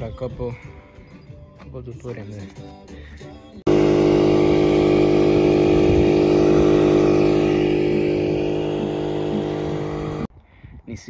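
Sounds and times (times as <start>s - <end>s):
motor humming steadily: 3.7s - 10.3s.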